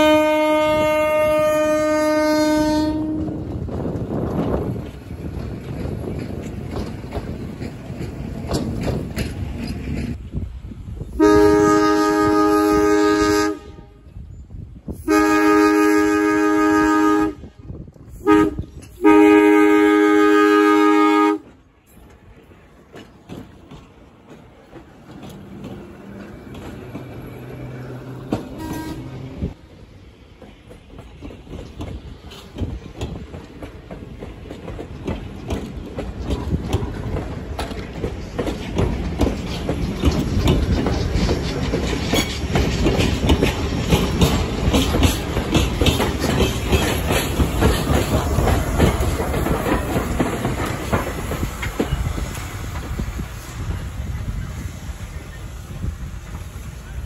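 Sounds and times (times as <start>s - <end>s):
train air horn blasts: 0.0s - 3.4s, 11.2s - 14.2s, 14.9s - 21.5s, 28.5s - 29.6s
railcars rumbling over track: 0.0s - 57.0s.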